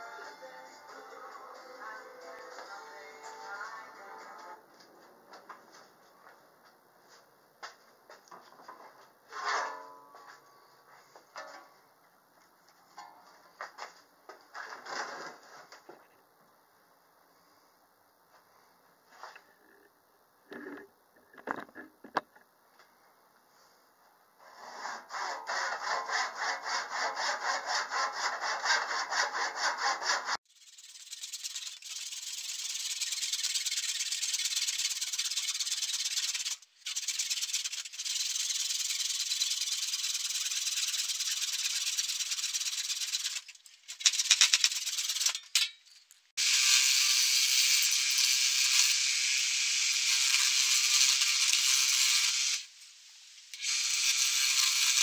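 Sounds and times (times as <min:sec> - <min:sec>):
handsaw cutting wood: 0:24.5 - 0:30.4.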